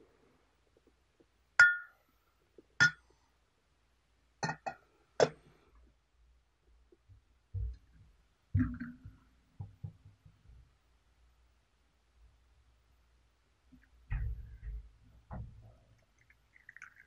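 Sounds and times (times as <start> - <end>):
glass lid clinking on teapot: 1.6 - 1.9.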